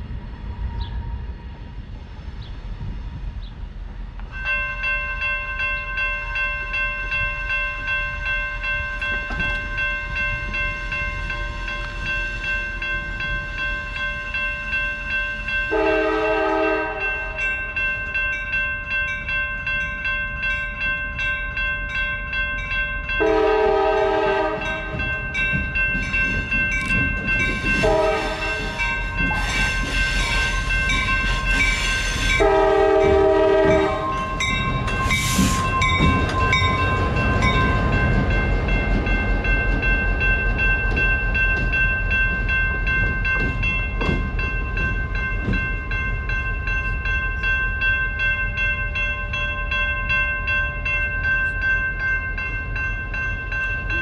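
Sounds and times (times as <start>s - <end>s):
crossing bell ringing: 4.2s - 54.0s
locomotive horn blasts: 15.7s - 17.5s, 23.2s - 25.0s, 27.8s - 29.7s, 32.0s - 34.3s.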